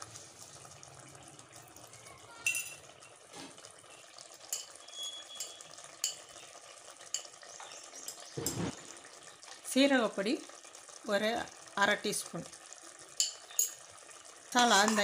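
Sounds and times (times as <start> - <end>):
food sizzling in oil: 0.0 - 15.0
spoon clicking against pan: 4.5 - 4.8, 5.4 - 6.3, 7.1 - 7.4, 13.2 - 13.8
spoon scraping a pan: 8.1 - 9.0.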